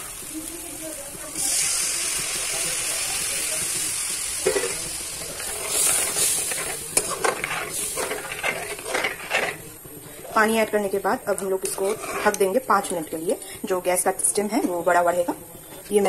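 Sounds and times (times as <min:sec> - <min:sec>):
loud sizzle of water in hot oil: 0:00.0 - 0:16.0
metal ladle scraping pan: 0:04.4 - 0:09.8, 0:11.3 - 0:12.6.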